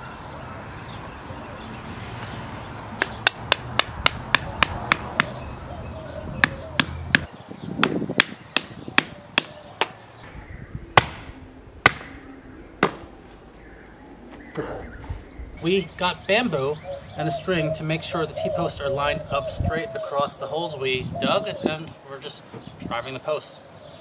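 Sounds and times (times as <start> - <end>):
hammer striking bamboo stake: 3.0 - 5.4, 6.4 - 10.0, 11.0 - 12.1.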